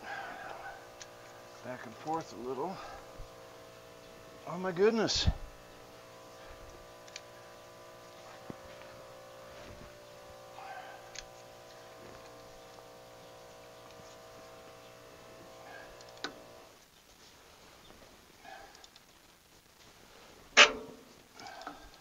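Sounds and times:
air compressor motor humming: 0:00.0 - 0:16.8.

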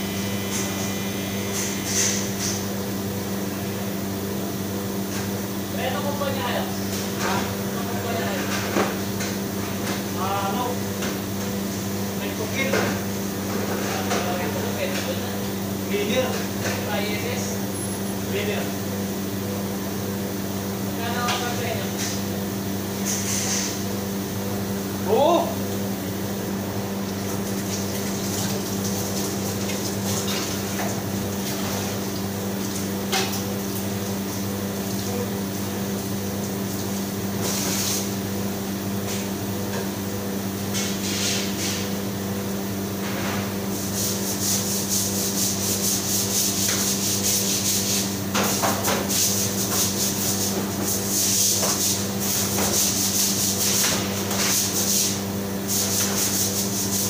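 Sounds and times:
kitchen machinery hum: 0:00.0 - 0:57.0
broom sweeping tiled floor: 0:40.7 - 0:41.9, 0:43.8 - 0:57.0.

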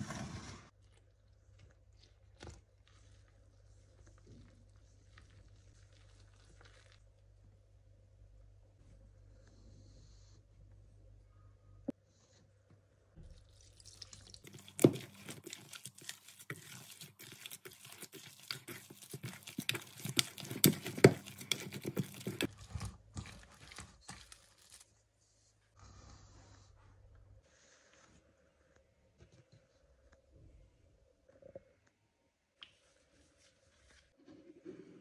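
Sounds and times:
hand squelching wet dough: 0:00.7 - 0:07.4, 0:13.2 - 0:24.9.

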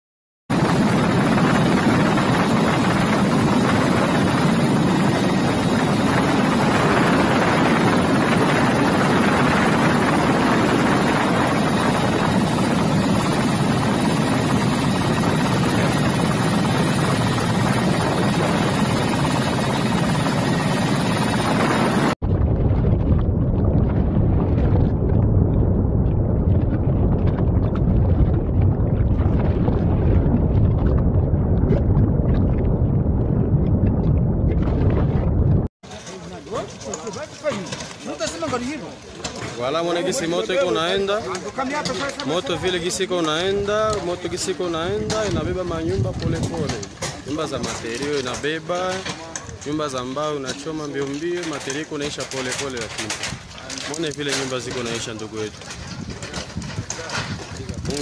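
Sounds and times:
helicopter rotor and engine: 0:00.5 - 0:22.2, 0:35.9 - 0:58.0
deep gusty rumble: 0:00.5 - 0:35.7, 0:42.4 - 0:48.7, 0:50.8 - 0:58.0.

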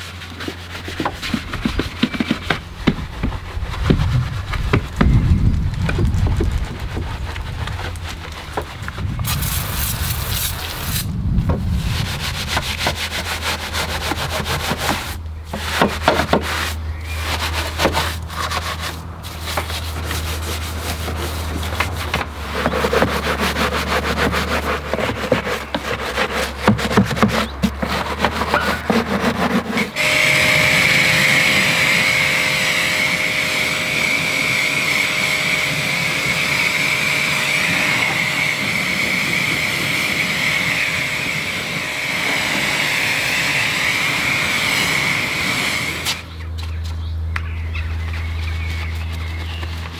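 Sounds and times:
brush scrubbing: 0:00.0 - 0:46.3, 0:47.9 - 0:49.9
pressure washer spraying: 0:09.2 - 0:25.5, 0:29.8 - 0:46.3.

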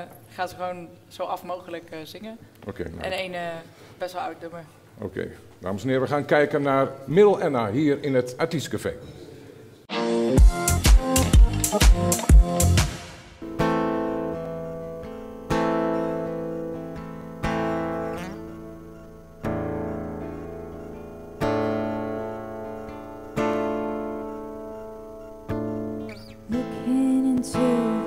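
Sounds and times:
acoustic guitar chords strummed: 0:09.9 - 0:28.0
woman singing: 0:26.5 - 0:28.0.

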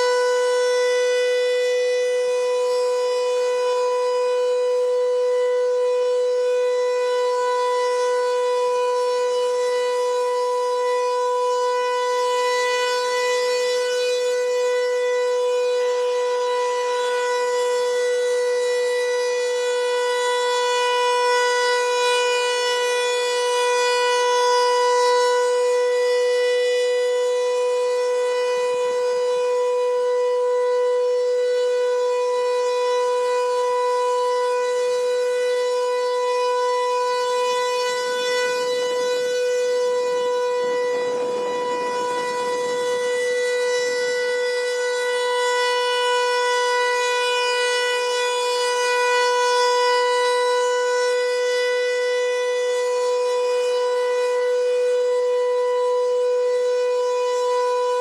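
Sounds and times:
rotating warning siren: 0:00.0 - 0:58.0.

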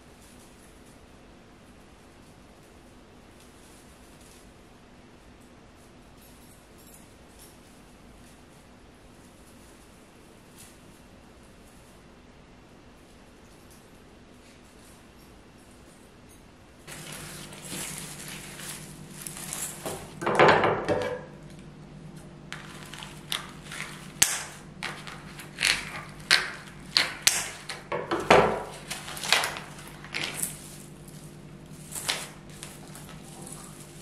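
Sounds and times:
steady low hum: 0:00.0 - 0:34.0
objects clicking and knocking: 0:22.5 - 0:30.8.

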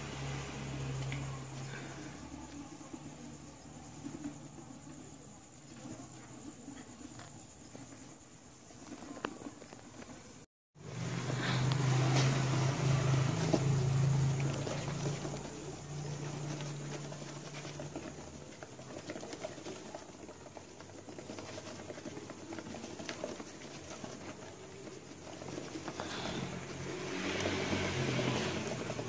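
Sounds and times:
hamster paws pattering on floor: 0:00.2 - 0:29.0.

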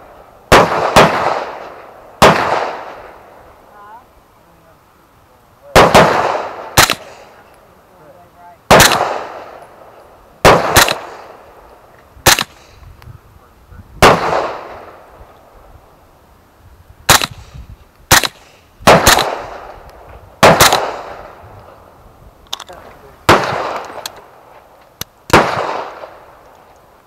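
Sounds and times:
suppressed gunshots: 0:00.5 - 0:03.2, 0:05.8 - 0:07.4, 0:08.7 - 0:09.6, 0:10.4 - 0:11.5, 0:12.2 - 0:12.8, 0:14.0 - 0:15.0, 0:17.1 - 0:19.8, 0:20.4 - 0:21.4, 0:23.3 - 0:24.3, 0:25.0 - 0:26.3.

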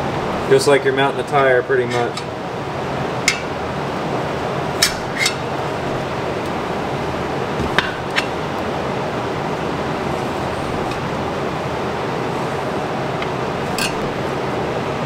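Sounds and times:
steady background hiss: 0:00.0 - 0:15.0
tire spoons clinking on rim: 0:13.7 - 0:14.1.

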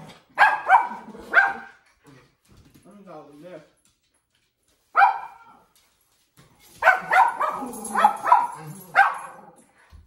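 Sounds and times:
dog barking: 0:00.4 - 0:01.8, 0:04.9 - 0:05.6, 0:06.8 - 0:09.6.

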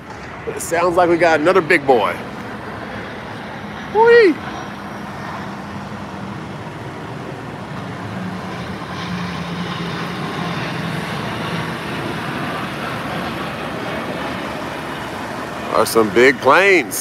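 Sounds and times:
jet aircraft flying low overhead: 0:00.0 - 0:17.0.

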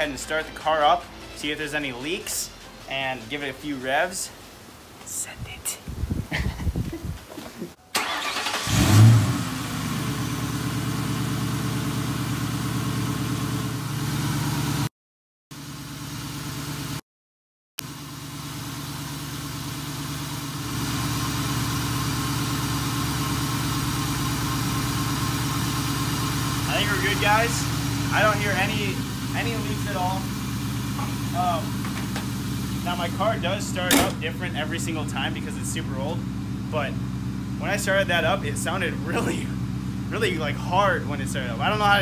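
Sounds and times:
car engine cranking and idling: 0:07.6 - 0:14.9, 0:17.8 - 0:42.0.

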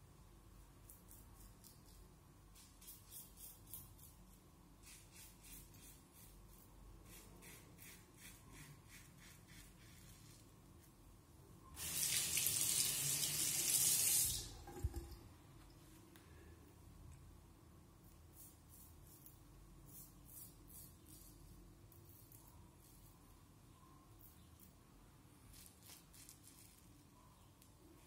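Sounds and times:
tap running into sink: 0:14.3 - 0:15.2.

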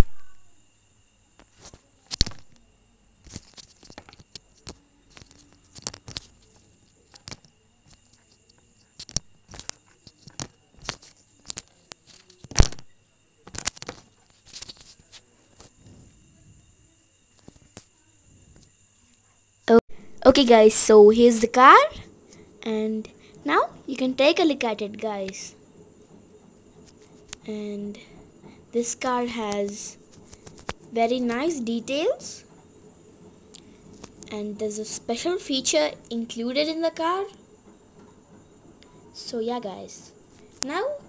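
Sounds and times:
plastic crinkling and clicking: 0:13.4 - 0:15.7.

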